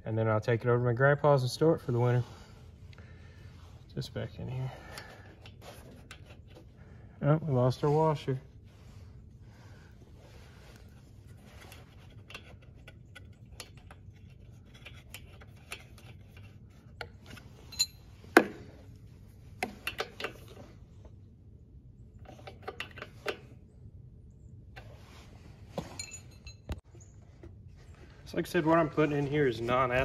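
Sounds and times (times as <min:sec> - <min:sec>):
small metallic clicks and taps: 0:19.6 - 0:20.6.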